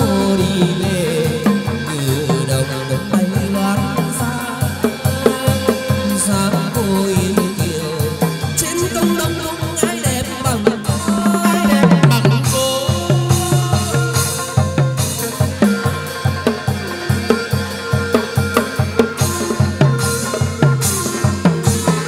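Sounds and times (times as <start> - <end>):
drums and percussion beat: 0.0 - 22.0.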